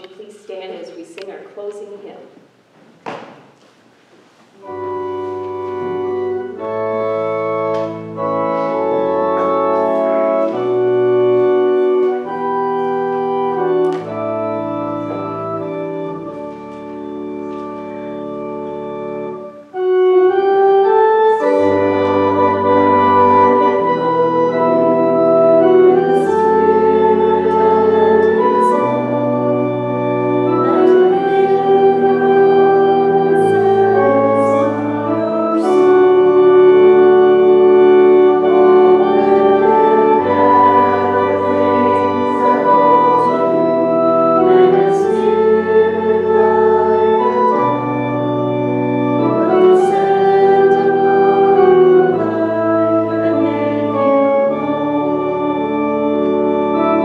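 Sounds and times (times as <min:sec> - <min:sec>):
church organ playing hymn: 0:04.6 - 0:57.0.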